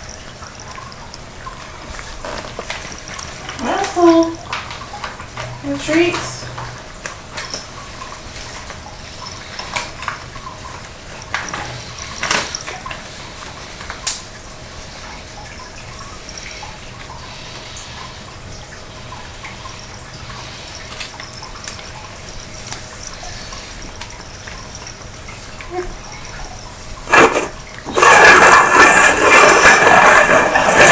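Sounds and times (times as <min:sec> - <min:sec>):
cats licking and chewing food: 0:00.0 - 0:29.5.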